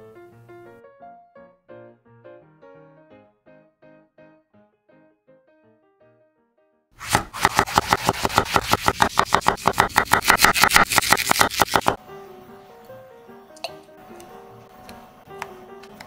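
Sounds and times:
soft background music: 0.0s - 6.8s, 12.0s - 16.0s
knife chopping on wooden board: 7.0s - 12.0s.

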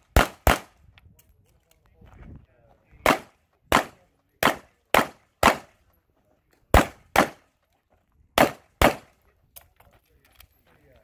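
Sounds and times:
pistol shots: 0.1s - 0.8s, 3.0s - 5.8s, 6.7s - 7.5s, 8.4s - 9.2s.

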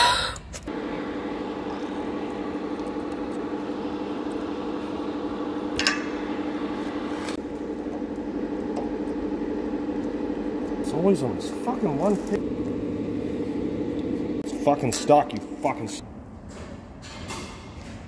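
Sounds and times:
machine hum: 0.6s - 16.9s.

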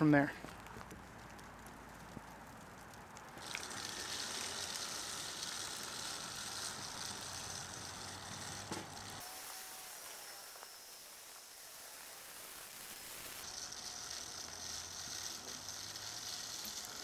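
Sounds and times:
granules pattering on asphalt: 0.0s - 9.2s.

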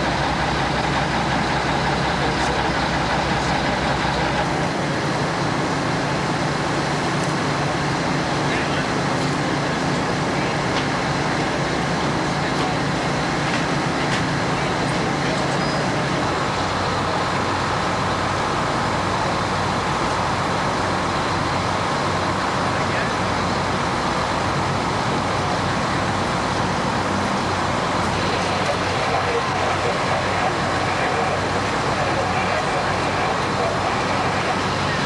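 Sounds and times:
fire engines humming: 0.0s - 35.0s
voices in background: 7.6s - 21.0s, 24.8s - 35.0s.

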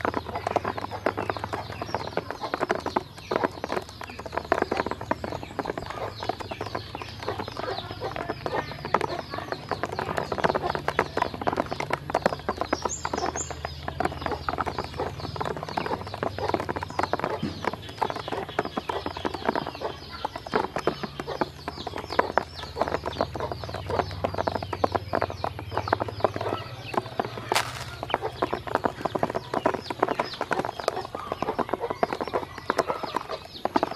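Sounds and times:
ducklings peeping: 0.0s - 33.9s
bills tapping on plastic: 26.0s - 30.6s.

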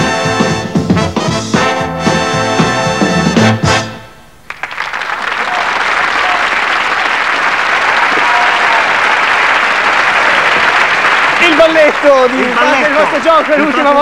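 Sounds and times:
audience applauding: 4.4s - 14.0s.

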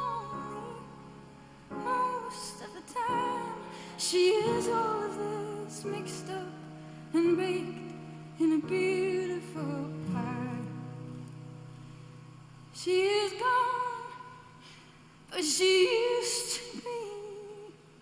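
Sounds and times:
woman singing with vibrato: 0.0s - 11.0s, 12.8s - 14.7s, 15.3s - 17.9s.

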